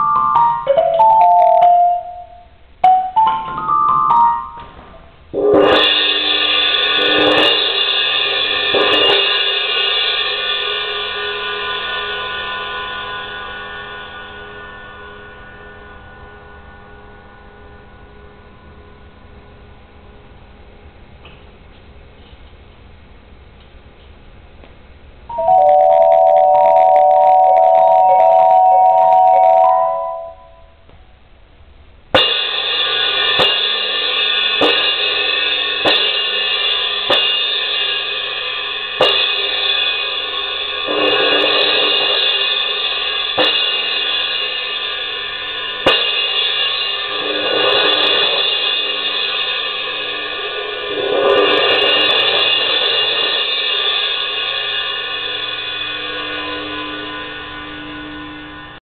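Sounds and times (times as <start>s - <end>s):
cymbal struck with soft mallets: 32.1s - 58.6s.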